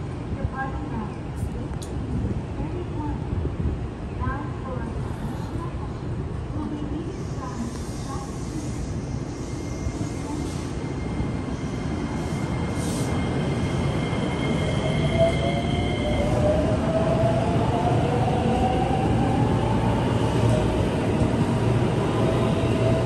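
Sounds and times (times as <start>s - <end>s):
train wheels rumbling on rail: 4.7s - 23.0s.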